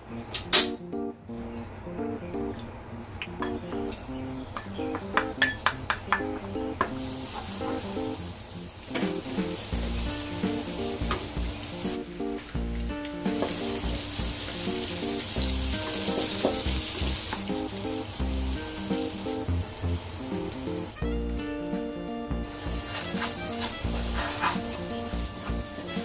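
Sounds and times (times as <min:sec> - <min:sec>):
funky background music: 0:00.1 - 0:26.0
garlic sizzling in hot oil: 0:06.8 - 0:21.5, 0:22.3 - 0:26.0
wooden spatula stirring: 0:22.6 - 0:26.0.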